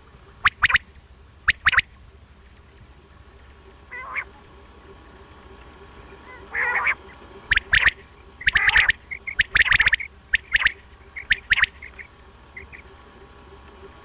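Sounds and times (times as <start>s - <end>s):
quail calling: 0.4s - 1.9s, 3.8s - 4.5s, 6.0s - 13.0s.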